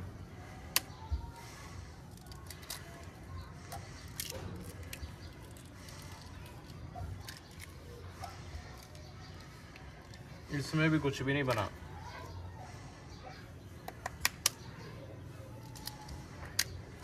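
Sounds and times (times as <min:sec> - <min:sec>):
shell clicking and crackling: 0:02.0 - 0:07.9, 0:13.8 - 0:14.8, 0:15.6 - 0:17.0
eggshell cracking: 0:13.8 - 0:14.6.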